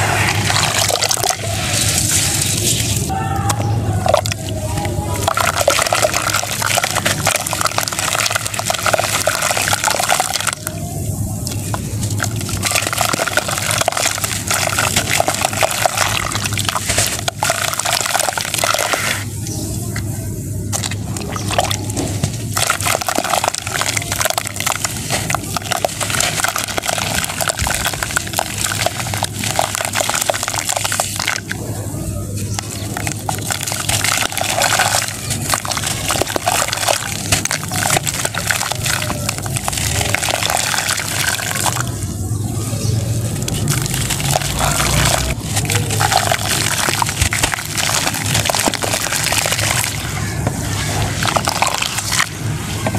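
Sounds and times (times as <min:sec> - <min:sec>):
water splashing and sloshing: 0:00.0 - 0:52.9
crunchy crackle of falling grains: 0:32.4 - 0:42.0, 0:43.3 - 0:52.4.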